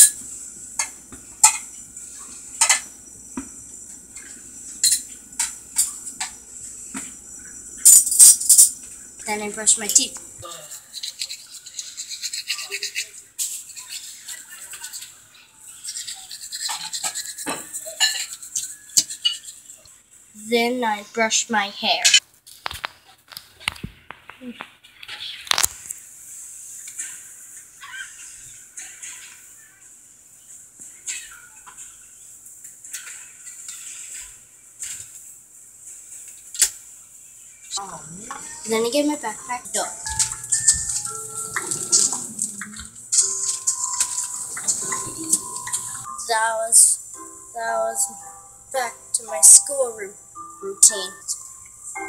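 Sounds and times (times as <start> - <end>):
toothbrush scrubbing teeth: 9.3 - 19.8, 37.8 - 46.1.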